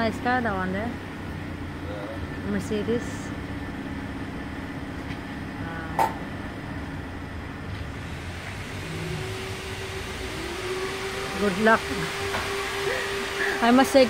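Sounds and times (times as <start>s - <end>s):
sharp knock: 6.0s - 6.3s
vacuum machine humming: 7.7s - 14.0s
rising tone: 7.9s - 14.0s.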